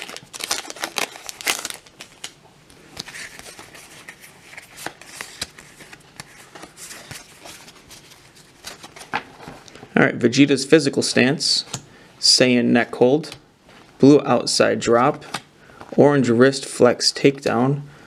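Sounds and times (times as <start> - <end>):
foil wrapper crinkling: 0.0 - 9.3
trading cards rustling: 0.0 - 9.8.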